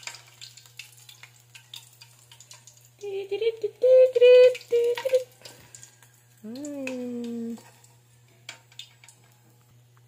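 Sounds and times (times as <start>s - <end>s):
high-pitched voice holding notes: 3.0s - 5.3s.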